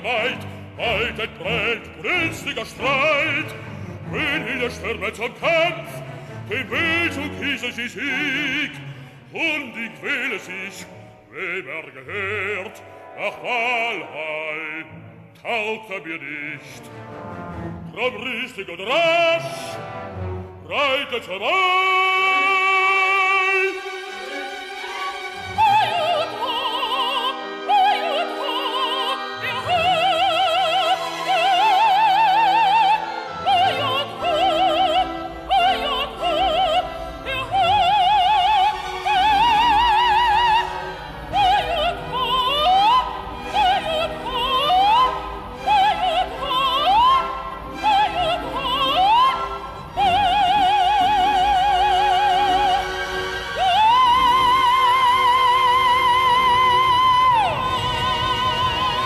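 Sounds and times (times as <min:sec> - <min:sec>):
operatic singing: 0:00.0 - 0:59.0
orchestra playing: 0:00.0 - 0:59.0.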